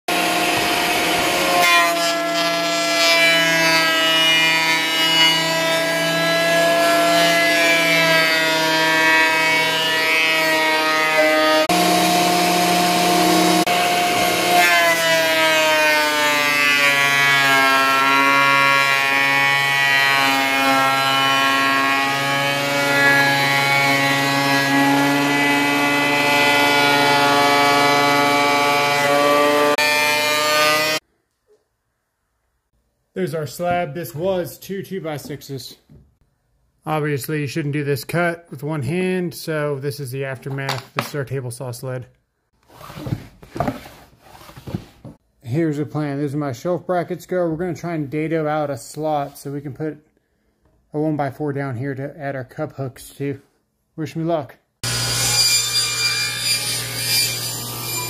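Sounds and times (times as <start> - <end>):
thickness planer motor whine: 0.1 - 2.0, 8.4 - 17.2.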